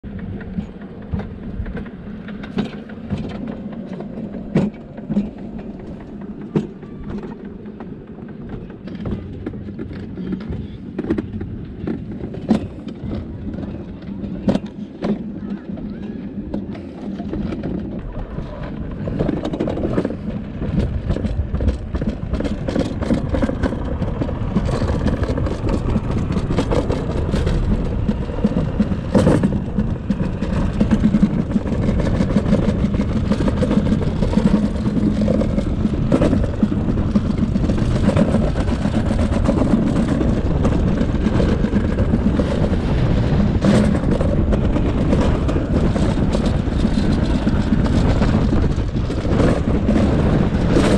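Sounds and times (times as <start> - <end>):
sled rumbling down metal trough: 0.0 - 50.9.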